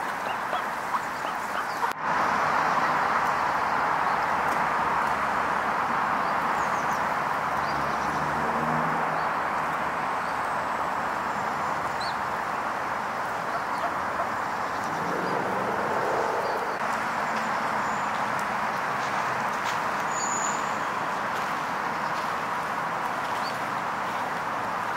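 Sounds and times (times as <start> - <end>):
steady rushing noise: 13.3 - 17.0.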